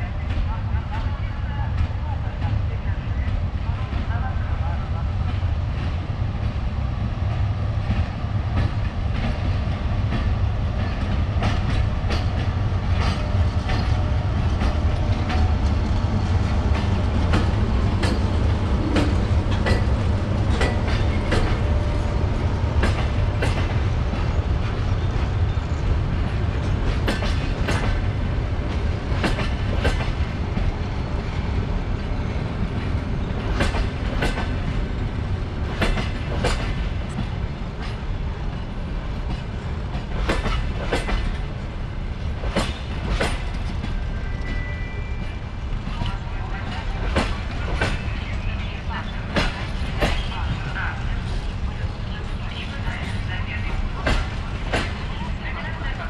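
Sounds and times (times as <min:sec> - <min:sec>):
train low rumble: 0:00.0 - 0:56.0
wheels clicking over rail joints: 0:10.1 - 0:22.0.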